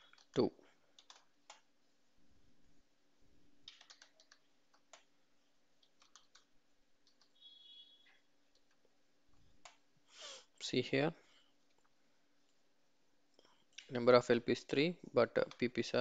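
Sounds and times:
faint keyboard typing: 0:00.0 - 0:01.8, 0:03.5 - 0:09.9, 0:15.3 - 0:16.0.

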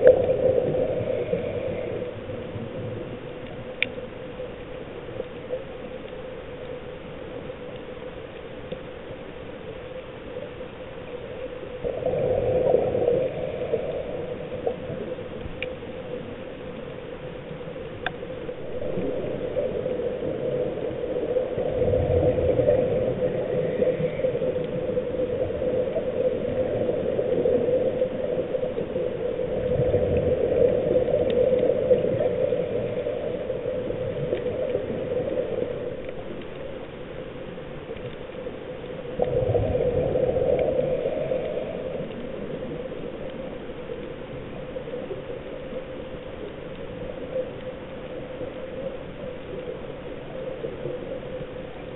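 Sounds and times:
steady hum: 0:00.0 - 0:51.9
underwater bubbles gurgling: 0:00.0 - 0:51.9.

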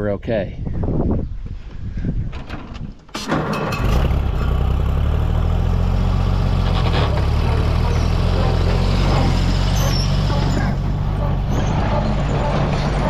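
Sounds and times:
tractor engine running: 0:03.0 - 0:13.0
baler mechanism running: 0:03.2 - 0:13.0.

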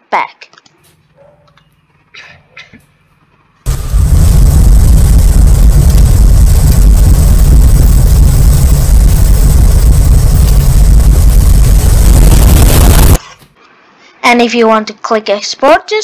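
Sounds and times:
dense rumbling noise: 0:03.7 - 0:13.2.

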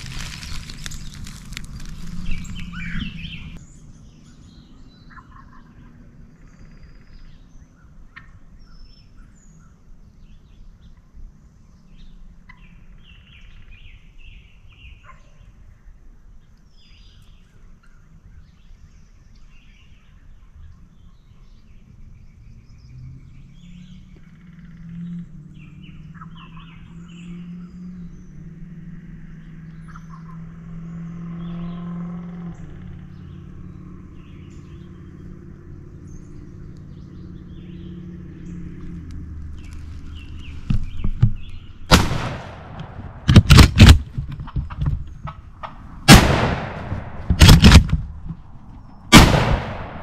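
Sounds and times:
birds chirping: 0:00.0 - 0:10.9, 0:16.4 - 0:50.0.

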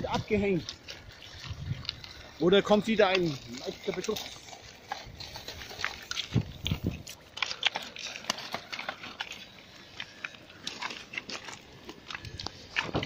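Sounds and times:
pebbles crunching underfoot: 0:00.0 - 0:13.0.

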